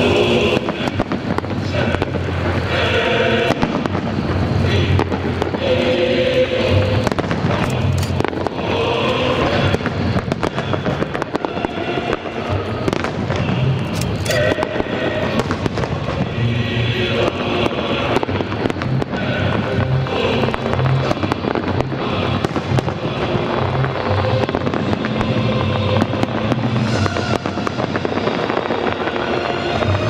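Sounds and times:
music playing: 0.0 - 30.0
firework shells bursting: 6.8 - 16.3.

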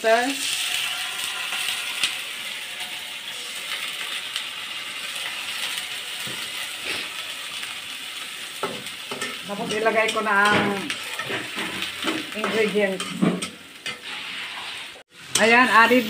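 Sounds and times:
vegetables sizzling in a wok: 0.0 - 16.0
metal spatula tapping pan: 8.6 - 14.0.

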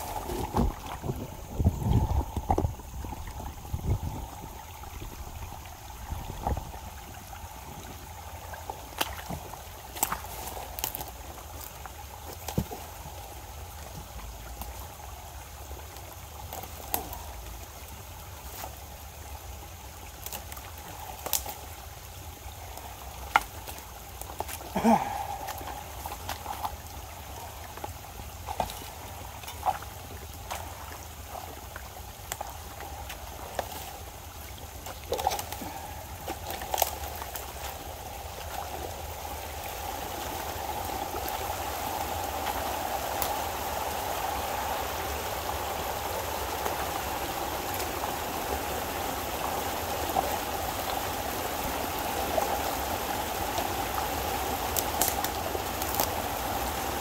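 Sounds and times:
water running through dam: 0.0 - 57.0.

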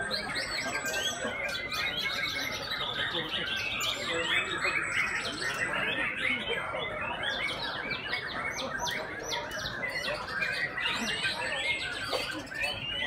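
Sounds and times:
chorus of birds singing: 0.0 - 13.0.

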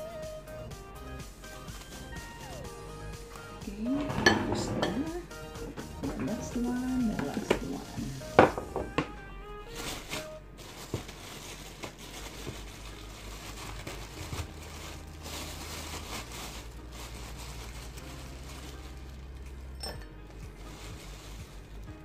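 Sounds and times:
plastic bag crinkling: 9.6 - 22.0.

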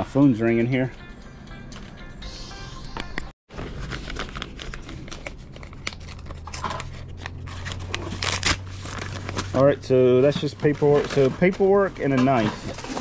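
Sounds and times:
paper rustling and crinkling: 3.5 - 13.0.

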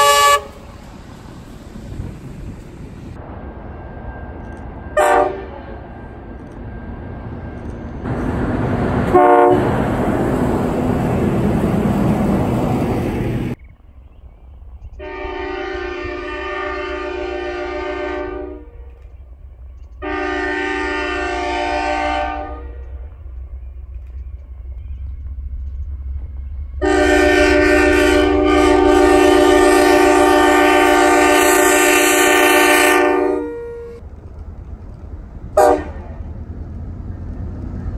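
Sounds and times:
locomotive air horn blasts: 0.0 - 0.6, 5.0 - 5.8, 9.1 - 9.8, 15.0 - 18.9, 20.0 - 22.9, 26.8 - 34.0, 35.6 - 36.2
steady low rumble: 0.4 - 16.3, 22.5 - 31.2, 33.8 - 37.9.

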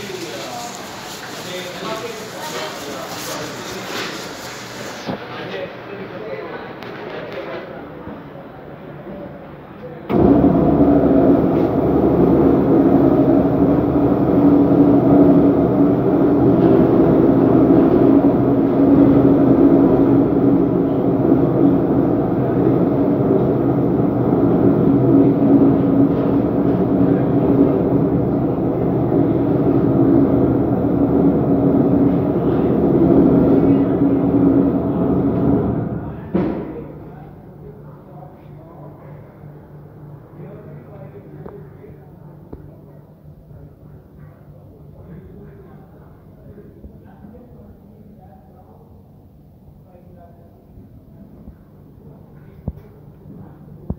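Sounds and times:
lift hoist machine humming: 10.1 - 36.2.

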